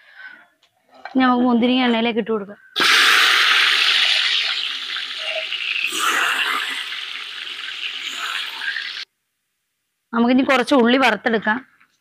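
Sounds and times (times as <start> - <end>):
sizzling in hot oil: 2.8 - 9.1.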